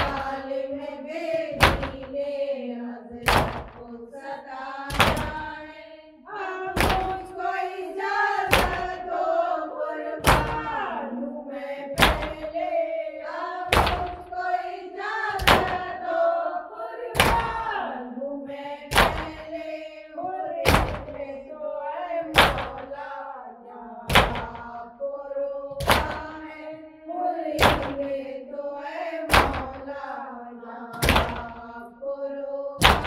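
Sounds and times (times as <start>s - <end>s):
chanted lament: 0.0s - 33.0s
hand slapping chest: 1.6s - 2.2s, 3.2s - 3.8s, 4.9s - 5.4s, 6.8s - 7.3s, 8.5s - 9.0s, 10.2s - 10.7s, 12.0s - 12.5s, 13.7s - 14.4s, 15.3s - 15.9s, 17.2s - 17.6s, 18.9s - 19.5s, 20.7s - 21.2s, 22.3s - 23.0s, 24.1s - 24.7s, 25.8s - 26.4s, 27.6s - 28.1s, 29.3s - 29.9s, 30.9s - 31.6s, 32.8s - 33.0s.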